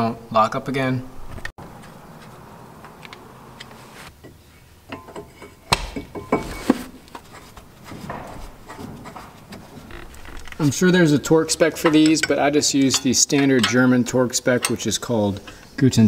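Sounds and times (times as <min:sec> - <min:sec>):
metal clinks and knocks: 0:04.2 - 0:10.6, 0:11.2 - 0:15.6.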